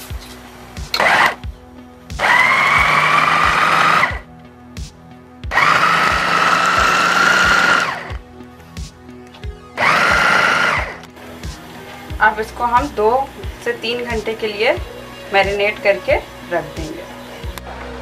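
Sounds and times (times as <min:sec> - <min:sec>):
electric food chopper whining: 0:00.9 - 0:01.5, 0:02.2 - 0:04.2, 0:05.5 - 0:08.2, 0:09.7 - 0:11.1.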